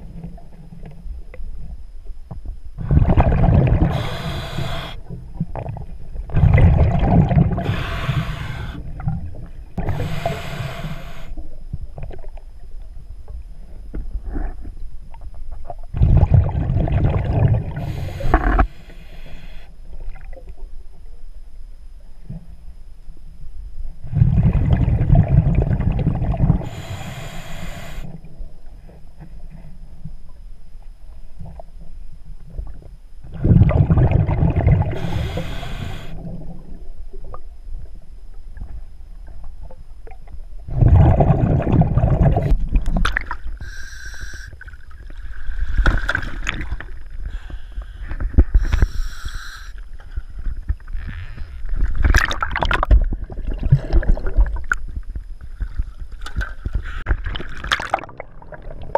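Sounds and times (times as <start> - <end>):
exhaled bubbles rushing underwater: 2.8 - 10.7, 16.0 - 18.6, 24.1 - 26.8, 33.3 - 37.4, 40.1 - 43.6, 51.8 - 55.0, 55.6 - 58.9
regulator inhale hiss: 3.8 - 5.2, 7.6 - 9.0, 9.8 - 11.5, 17.7 - 19.8, 26.6 - 28.2, 34.9 - 36.3, 43.6 - 44.7, 45.3 - 50.5.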